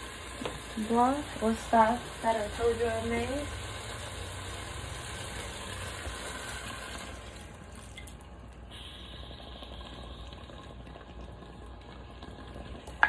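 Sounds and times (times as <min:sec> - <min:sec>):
liquid pouring and splashing: 0:03.5 - 0:13.0.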